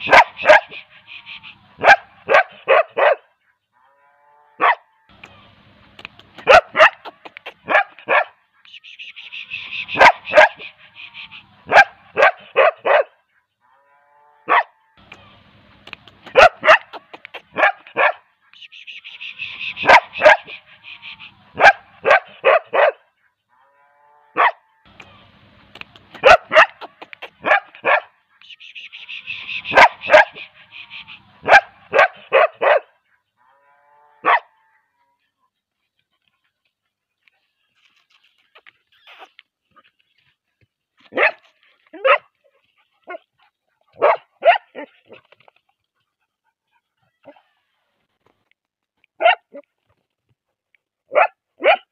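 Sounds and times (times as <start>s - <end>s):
dog barking: 0.0s - 0.8s, 1.8s - 3.3s, 4.6s - 4.9s, 6.4s - 8.4s, 9.9s - 10.7s, 11.7s - 13.2s, 14.5s - 14.8s, 16.3s - 18.3s, 19.8s - 20.6s, 21.6s - 23.1s, 24.4s - 24.6s, 26.2s - 28.2s, 29.6s - 30.5s, 31.4s - 33.0s, 34.2s - 34.6s, 41.1s - 42.3s, 43.9s - 45.2s, 49.2s - 49.7s, 51.1s - 51.9s.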